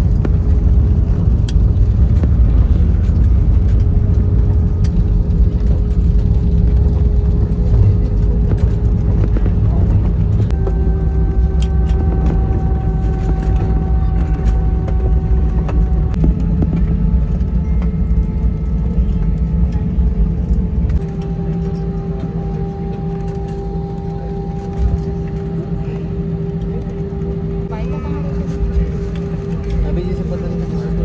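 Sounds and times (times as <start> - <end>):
jet engines whining: 0.0 - 31.0
low cabin rumble: 0.0 - 31.0.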